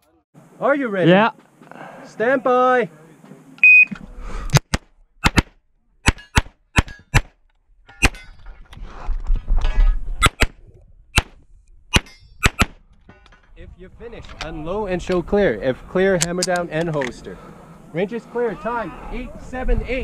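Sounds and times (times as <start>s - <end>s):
pistol shots: 11.2s - 12.8s.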